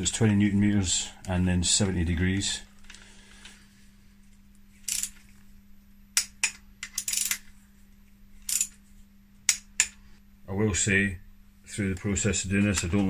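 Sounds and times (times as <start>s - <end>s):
torque wrench metallic clicks: 8.5s - 8.8s.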